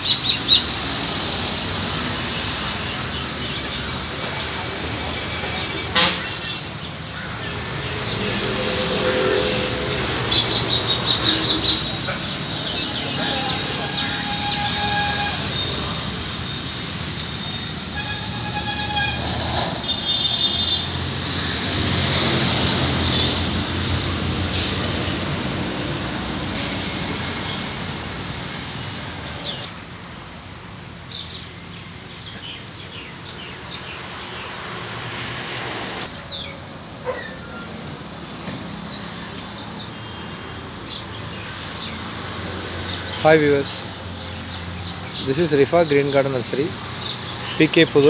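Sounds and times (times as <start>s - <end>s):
passing traffic rumble: 0.0s - 48.0s
car horn toots: 13.0s - 16.1s, 17.4s - 20.9s.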